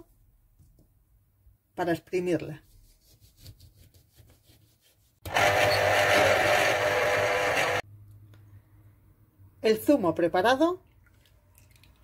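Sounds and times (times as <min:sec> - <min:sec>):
electric juicer running: 0:05.3 - 0:07.8.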